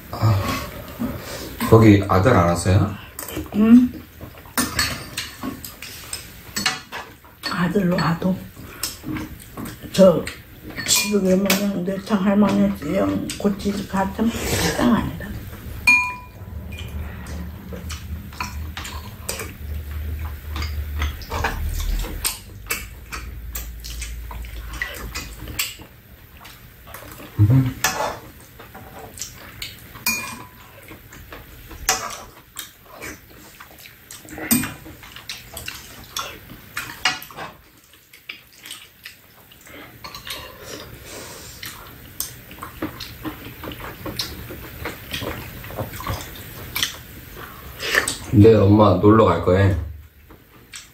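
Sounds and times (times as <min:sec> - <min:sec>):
chewing and slurping: 0:03.1 - 0:07.4, 0:08.4 - 0:10.8, 0:12.1 - 0:48.3
utensils clinking against bowls: 0:04.2 - 0:25.9, 0:30.0 - 0:31.0
low hum: 0:13.8 - 0:25.8, 0:27.4 - 0:27.8.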